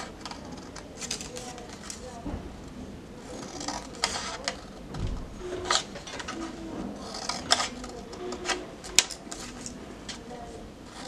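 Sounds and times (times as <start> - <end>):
card rustling: 0.0 - 2.2, 5.5 - 11.0.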